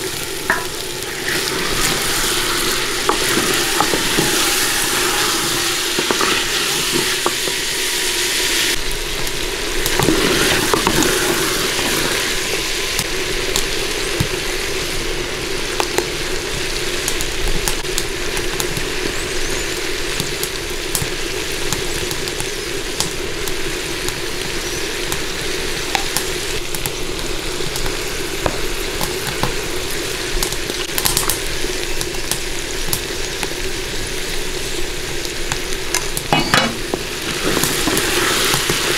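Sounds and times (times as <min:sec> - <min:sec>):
vegetables sizzling in a pot: 0:00.0 - 0:38.9
wooden spoon scraping a pot: 0:00.5 - 0:07.8, 0:36.3 - 0:38.8.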